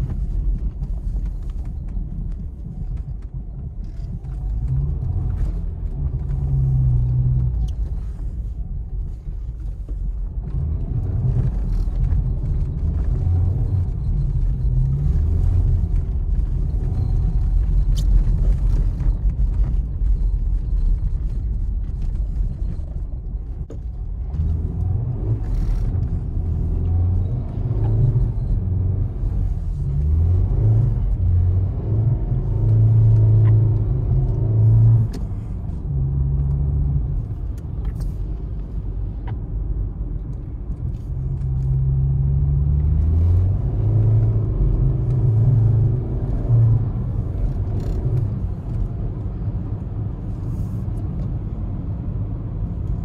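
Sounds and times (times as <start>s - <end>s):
car engine: 0.0s - 53.0s
road rumble: 0.0s - 53.0s.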